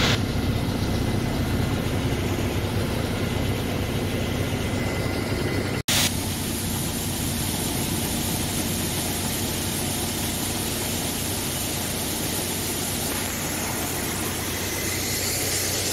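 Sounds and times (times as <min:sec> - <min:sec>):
heavy engine idling: 0:00.0 - 0:15.9
constant hiss: 0:06.0 - 0:15.9
corn pouring out: 0:06.0 - 0:15.9.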